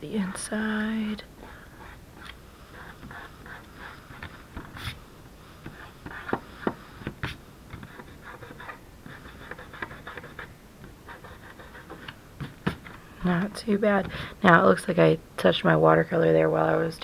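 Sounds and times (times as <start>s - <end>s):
fingertips rubbing paper: 1.4s - 5.0s, 5.6s - 10.5s, 11.1s - 12.1s.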